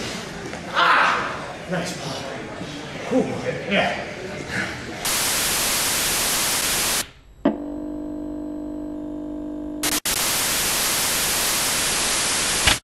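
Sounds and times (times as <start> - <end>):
recording static hiss: 5.0 - 7.4, 9.8 - 12.8
electrical hum: 5.1 - 12.8.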